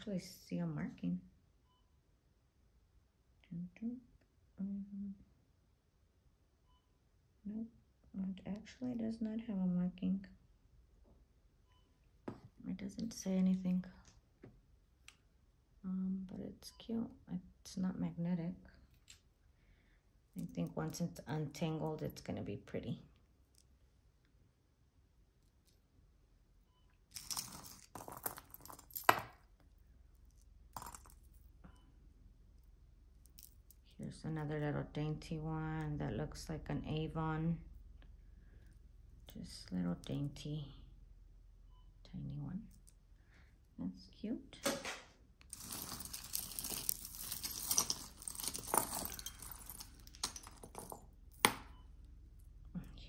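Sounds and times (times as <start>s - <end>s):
jewelry rustling and clinking: 18.9s - 19.4s, 20.3s - 22.3s, 27.0s - 31.8s, 32.5s - 34.0s, 45.4s - 52.6s
rustling: 45.5s - 51.4s.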